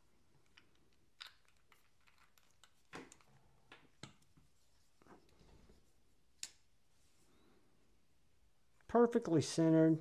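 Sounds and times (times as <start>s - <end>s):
soft rustle: 4.3s - 7.7s.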